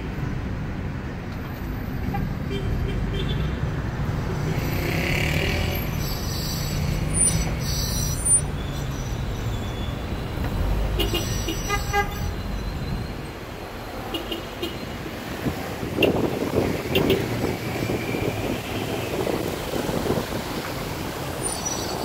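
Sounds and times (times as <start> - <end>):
car engines rumbling: 0.0 - 22.0
car horn: 10.9 - 13.0, 14.0 - 14.9.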